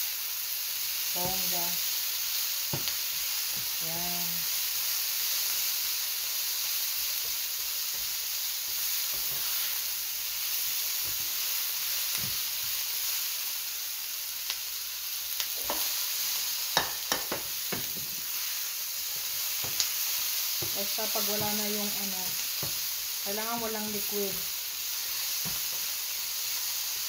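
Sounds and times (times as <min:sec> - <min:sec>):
vegetables sizzling in a frying pan: 0:00.0 - 0:27.0
spatula knocking against pan: 0:16.8 - 0:18.1.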